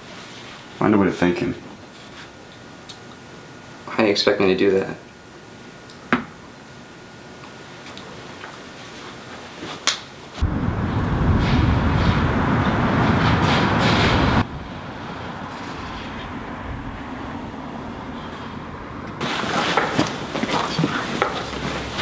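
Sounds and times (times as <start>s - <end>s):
traffic rumble: 10.4s - 22.0s.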